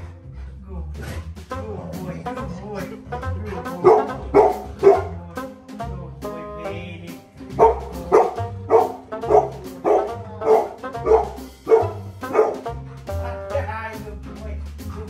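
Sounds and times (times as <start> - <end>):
dog barking: 3.8 - 5.2, 7.6 - 12.8.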